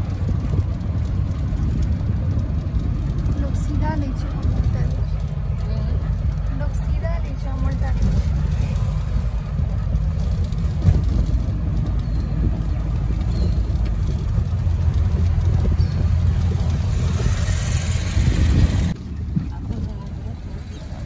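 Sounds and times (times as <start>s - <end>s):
vehicle road and engine rumble: 0.0s - 21.0s.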